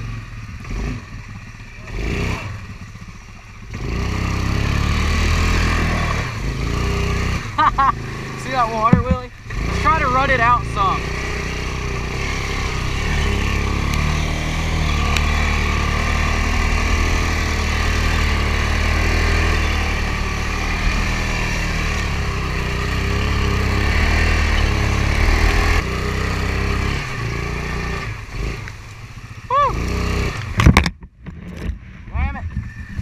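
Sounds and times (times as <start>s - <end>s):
quad engine running: 0.0s - 33.0s
wading through muddy water: 3.8s - 30.6s.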